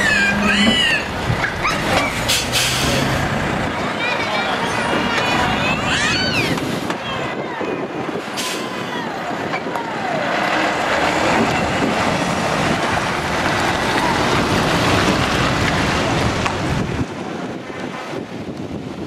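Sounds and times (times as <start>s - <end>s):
truck engine running: 0.0s - 5.9s
heavy rumble of tyres and trailer: 0.0s - 19.0s.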